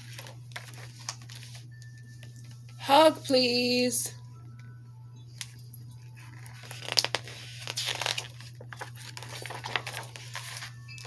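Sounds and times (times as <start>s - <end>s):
sharp paper crackles: 0.0s - 1.7s, 6.1s - 10.9s
book pages rustling: 0.0s - 2.8s, 5.4s - 11.0s.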